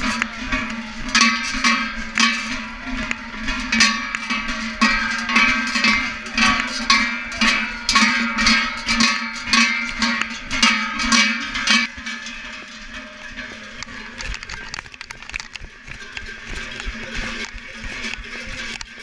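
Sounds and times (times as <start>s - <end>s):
cowbells clanking: 0.0s - 19.0s
faint scattered knocks: 13.7s - 18.9s.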